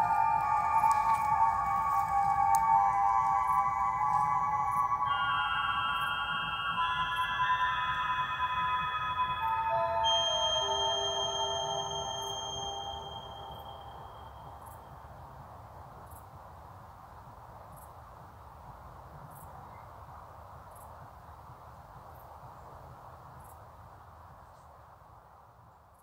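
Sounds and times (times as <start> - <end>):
faint high chirp: 0.0 - 15.1
synthesized music tone: 0.0 - 15.1.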